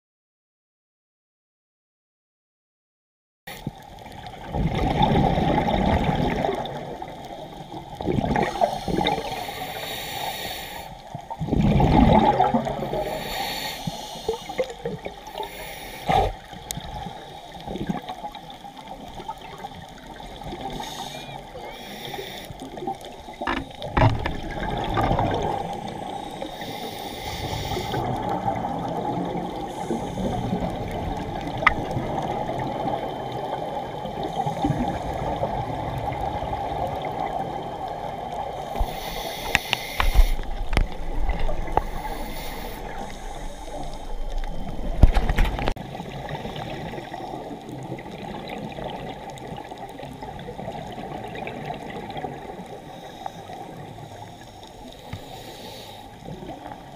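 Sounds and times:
muffled underwater rush: 0:03.5 - 0:56.9
diver exhalation bubbles: 0:08.0 - 0:09.4, 0:11.4 - 0:13.2, 0:23.4 - 0:25.7.

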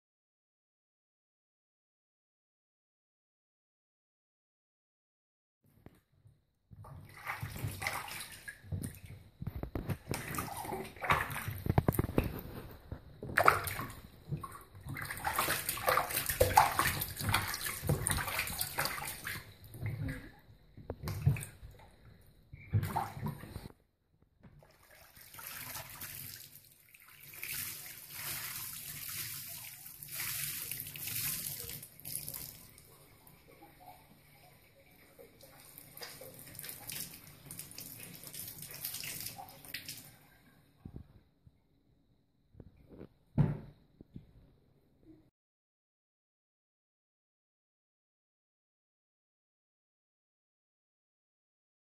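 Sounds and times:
water splashing in bathtub: 0:06.7 - 0:23.8, 0:24.4 - 0:41.3
water trickling: 0:07.2 - 0:23.7.

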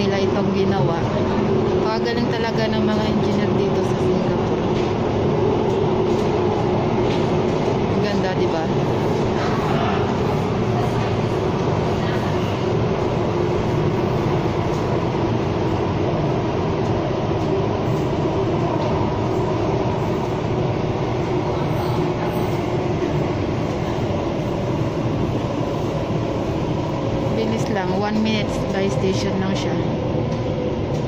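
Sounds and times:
subway train running in tunnel: 0:00.0 - 0:31.0.

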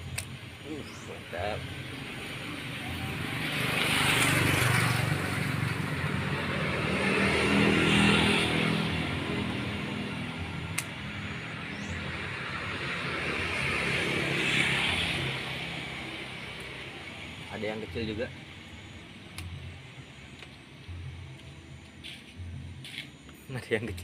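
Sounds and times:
pruning shears snip: 0:00.0 - 0:00.4, 0:10.6 - 0:11.1, 0:19.3 - 0:19.6
vehicles passing by: 0:00.0 - 0:24.0.

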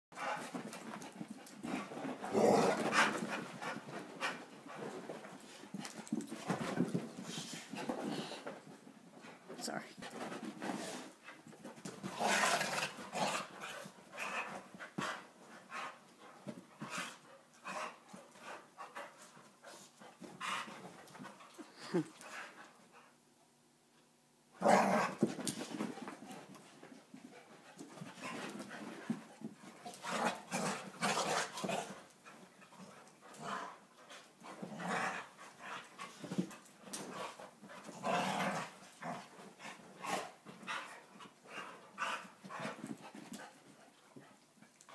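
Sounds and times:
dogs panting hard: 0:00.2 - 0:08.6, 0:13.3 - 0:23.2, 0:38.8 - 0:44.4
dogs scuffling: 0:00.2 - 0:22.8, 0:24.8 - 0:44.9.

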